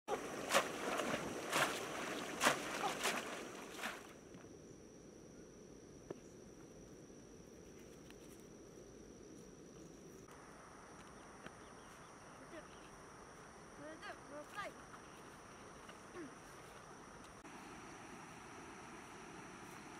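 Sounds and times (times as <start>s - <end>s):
stream water splashing: 0.0s - 4.2s
high insect drone: 0.1s - 19.9s.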